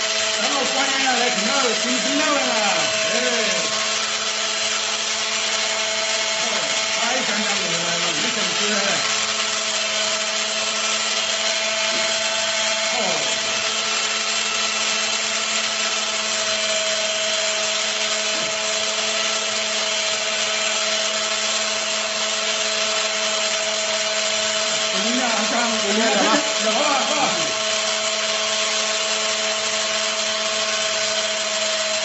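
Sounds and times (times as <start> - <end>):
electric grinder motor whine: 0.0 - 32.0.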